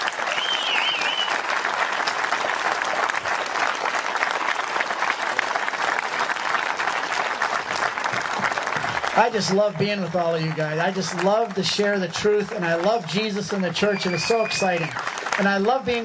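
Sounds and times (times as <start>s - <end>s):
audience applauding: 0.0s - 16.0s
wavering whistle: 0.3s - 1.4s, 13.9s - 15.0s.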